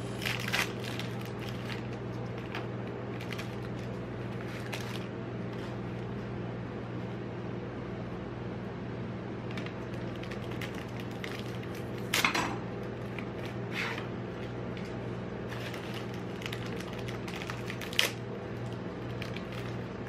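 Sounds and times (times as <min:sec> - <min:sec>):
steady low hum: 0:00.0 - 0:20.0
plastic wrappers crinkling: 0:00.1 - 0:06.1, 0:09.5 - 0:13.6, 0:14.3 - 0:20.0.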